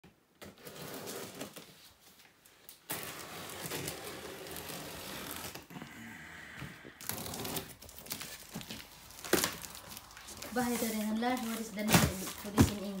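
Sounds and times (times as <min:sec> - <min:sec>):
cardboard rustling: 0:07.1 - 0:13.0.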